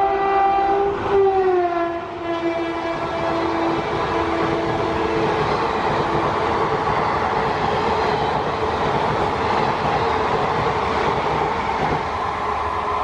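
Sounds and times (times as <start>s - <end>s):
train wheels rushing on rail: 0.0s - 13.0s
clickety-clack over rail joints: 2.7s - 13.0s.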